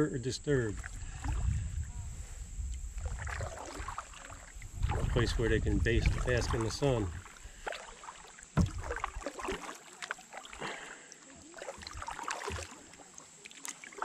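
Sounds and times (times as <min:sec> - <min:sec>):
paddle strokes in water: 0:00.6 - 0:14.0
water dripping: 0:06.1 - 0:14.0
sharp thump: 0:08.6 - 0:08.9.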